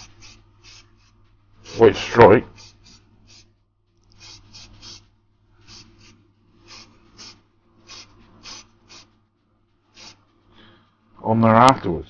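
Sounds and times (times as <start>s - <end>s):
aerosol spray can hissing: 0.0s - 1.1s, 2.5s - 3.5s, 4.1s - 9.1s, 10.0s - 10.2s.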